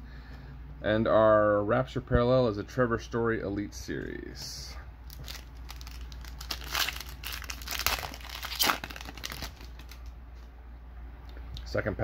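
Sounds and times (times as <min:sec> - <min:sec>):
plastic wrapper crinkling and tearing: 0:05.0 - 0:10.1.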